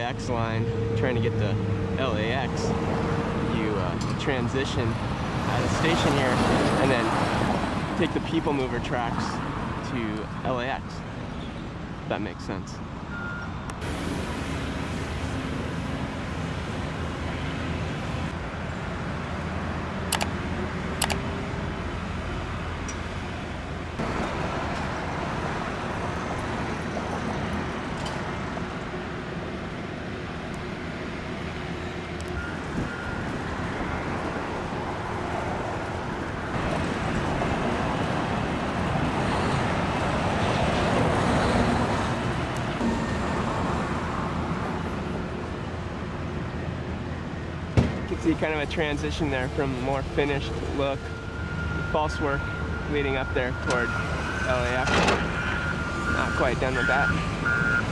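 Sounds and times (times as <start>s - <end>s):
road traffic noise: 0.0s - 57.9s
sharp clicks: 20.1s - 20.3s, 21.0s - 21.2s.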